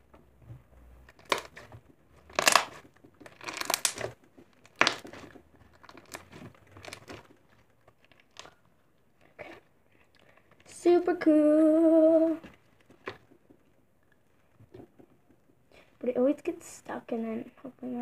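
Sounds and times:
slime crackling: 1.1s - 10.9s.

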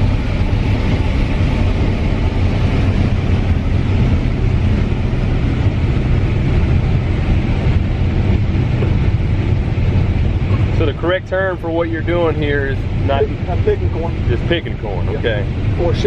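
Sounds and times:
combine engine drone: 0.0s - 16.0s
constant rushing noise: 0.0s - 16.0s.

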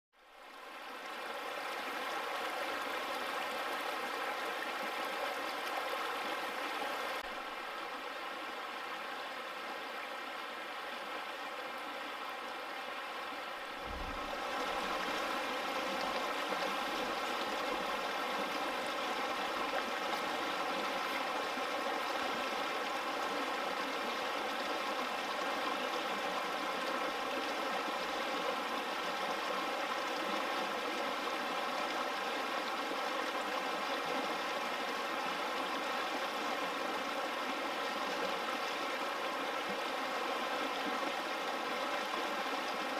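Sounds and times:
stream running over rocks: 0.2s - 42.9s
low thump: 13.8s - 14.3s.

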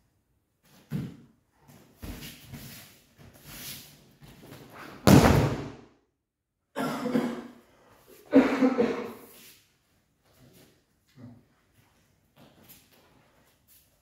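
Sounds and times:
body slapping onto mats: 4.4s - 5.8s.

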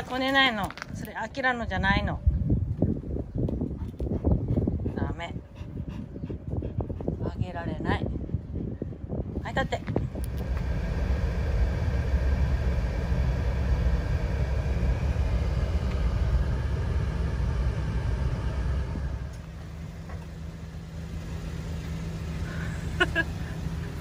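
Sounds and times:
car engine rumble: 8.0s - 24.0s.

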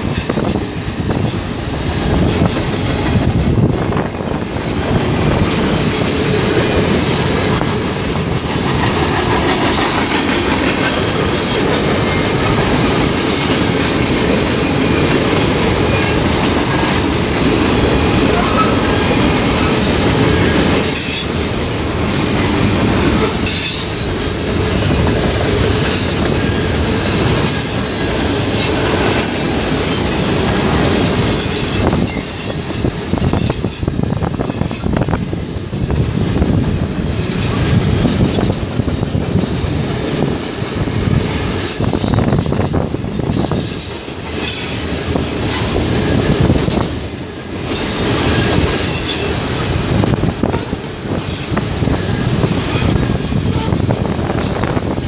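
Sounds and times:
train wheels rumbling on rails: 0.0s - 55.0s
high wheel squeals: 41.6s - 46.9s.

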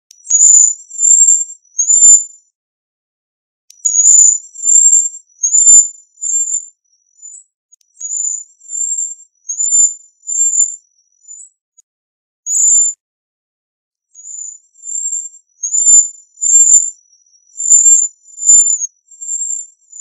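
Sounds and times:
bird whistled calls: 0.2s - 2.2s, 3.8s - 11.6s, 14.2s - 20.0s.

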